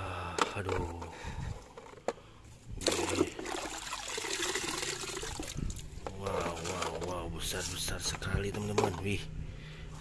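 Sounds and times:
water splashing in a tub: 2.8s - 5.9s.

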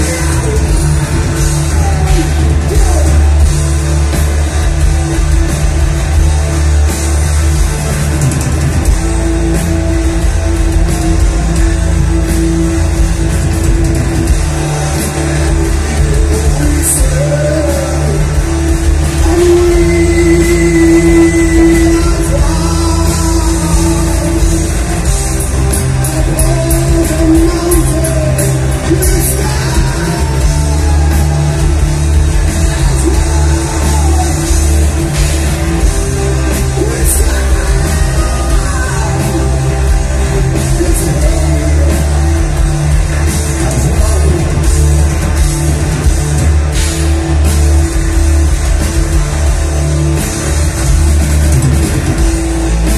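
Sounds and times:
heavy metal band playing live: 0.0s - 52.9s
person singing long held notes: 19.1s - 25.0s.

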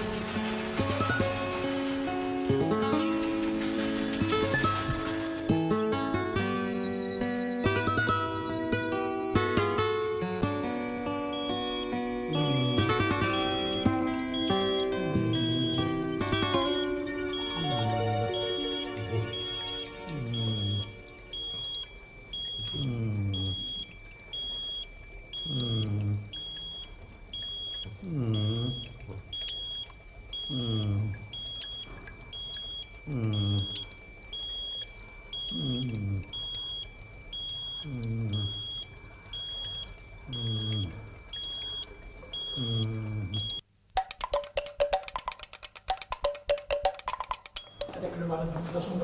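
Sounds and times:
patient monitor short high beeps: 11.3s - 43.6s.

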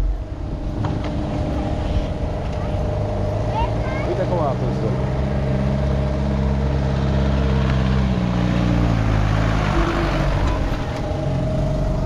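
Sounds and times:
rushing noise: 0.0s - 7.5s
vehicle engine running: 0.0s - 12.0s.

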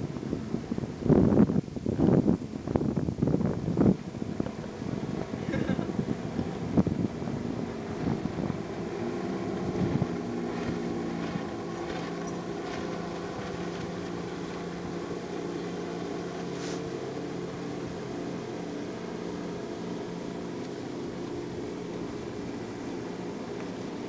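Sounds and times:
outboard motor running: 0.0s - 24.0s.

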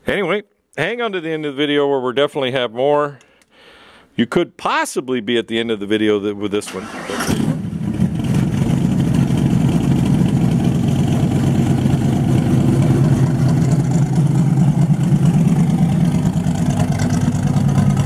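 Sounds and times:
car engine at low revs: 7.4s - 18.0s.

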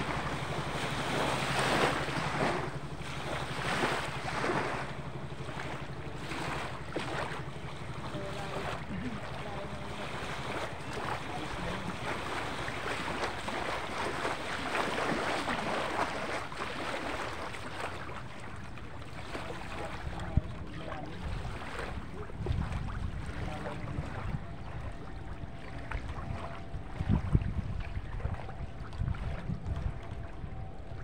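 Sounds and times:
water sloshing and splashing: 0.0s - 31.0s
wind buffeting microphone: 18.8s - 31.0s.

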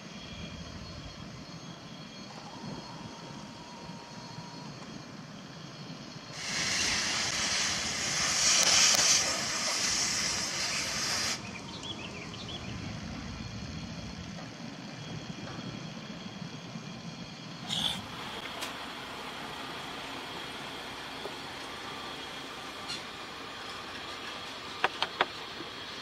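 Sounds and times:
low engine rumble: 0.0s - 26.0s
air brake venting hiss: 6.3s - 11.9s.

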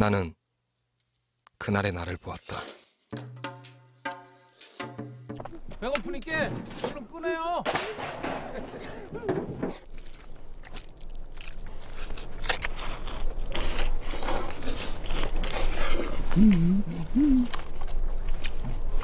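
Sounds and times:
people slurping noodles: 9.8s - 17.8s
chewing: 9.8s - 19.0s
person humming low: 16.0s - 17.8s.

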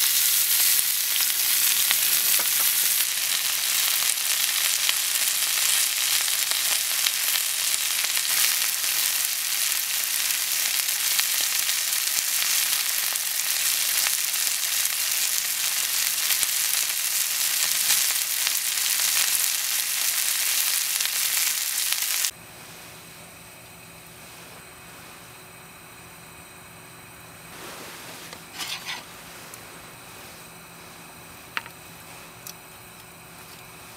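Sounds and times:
steak sizzling in a hot pan: 0.0s - 22.3s.

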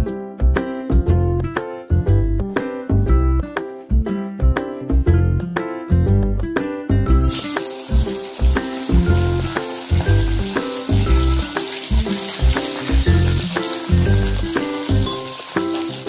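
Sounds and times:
rhythmic background music: 0.0s - 16.0s
fish sizzling in hot oil: 7.2s - 16.0s.

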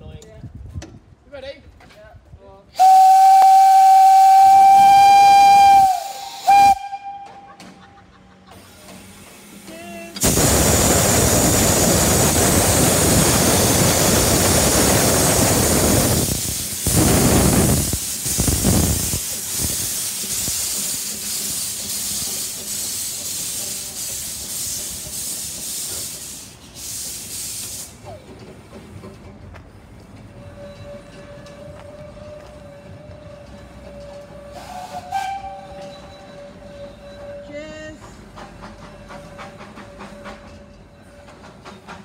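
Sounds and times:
steam venting hiss: 2.8s - 7.1s, 8.5s - 29.0s, 34.5s - 35.7s
steam bursts: 2.8s - 29.1s, 33.8s - 36.3s
steam locomotive puffing: 2.8s - 42.0s.

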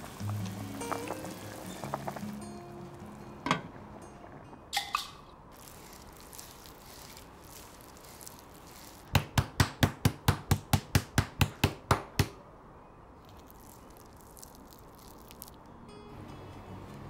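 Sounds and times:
meat pounded on chopping board: 9.1s - 12.4s.

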